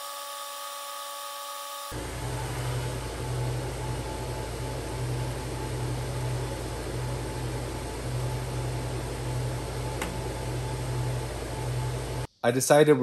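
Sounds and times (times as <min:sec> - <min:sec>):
fan-like air hiss: 0:01.9 - 0:12.3
low machine hum: 0:01.9 - 0:12.3.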